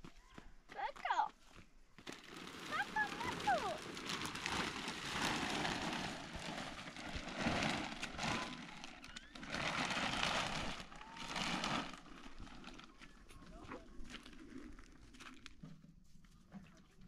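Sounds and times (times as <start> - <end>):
plastic sheeting rustling: 2.0 - 15.5.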